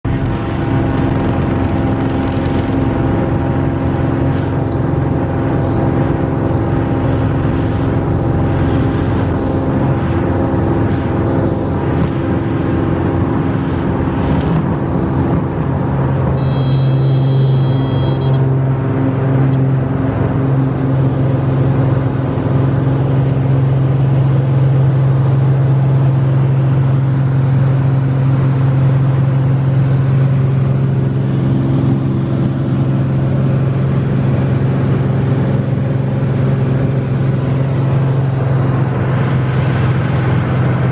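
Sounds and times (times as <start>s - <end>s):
light aircraft engine drone: 0.0s - 40.9s
high beep: 16.4s - 18.4s.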